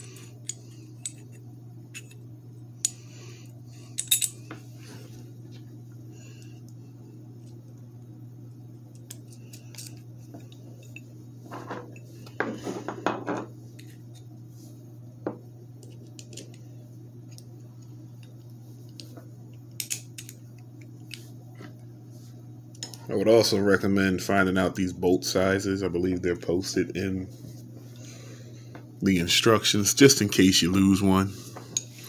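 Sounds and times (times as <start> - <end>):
metal parts clinking: 3.9 - 4.4.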